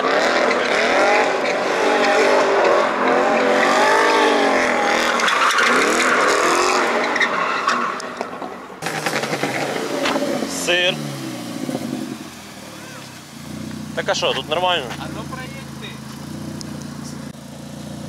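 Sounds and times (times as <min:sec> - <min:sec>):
car engine revving: 0:00.0 - 0:18.0
tyres squealing: 0:00.4 - 0:11.1.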